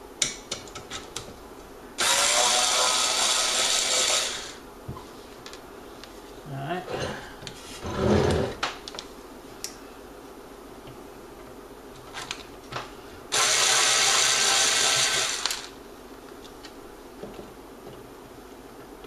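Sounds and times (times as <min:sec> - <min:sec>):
electric screwdriver running: 0:02.0 - 0:04.6, 0:13.3 - 0:15.7.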